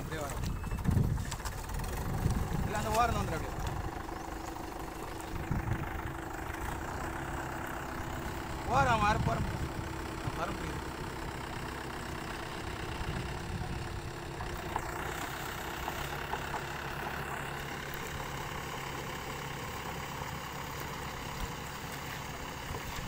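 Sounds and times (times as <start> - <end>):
tractor diesel engine running: 0.0 - 23.0.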